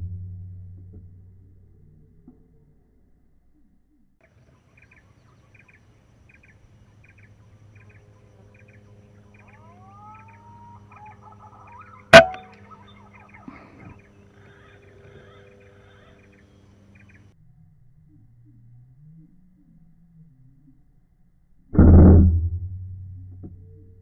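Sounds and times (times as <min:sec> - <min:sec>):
birds chirping and whistling: 0:04.4 - 0:17.3
air rifle shot: 0:12.2 - 0:12.6.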